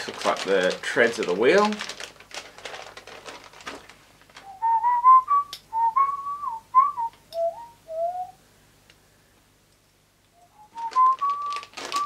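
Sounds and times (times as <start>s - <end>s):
rustling and clicking of plastic parts: 0.0s - 4.6s, 10.7s - 12.0s
man whistling a tune: 4.4s - 8.4s, 10.4s - 12.0s.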